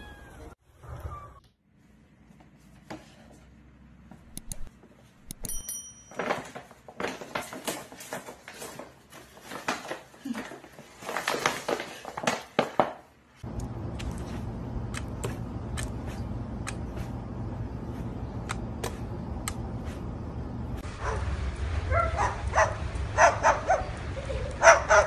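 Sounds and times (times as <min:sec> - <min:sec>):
paper bag rustling: 0:06.2 - 0:13.0.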